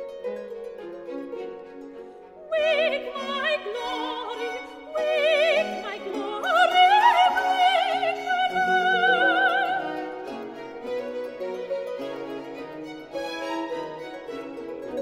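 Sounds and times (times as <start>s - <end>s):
small baroque orchestra: 0.0s - 15.0s
soprano singing with vibrato: 2.4s - 10.8s.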